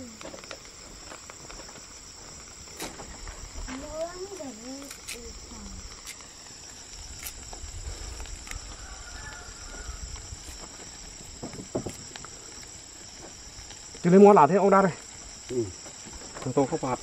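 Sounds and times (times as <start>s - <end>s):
high-pitched insect chorus: 0.0s - 17.0s.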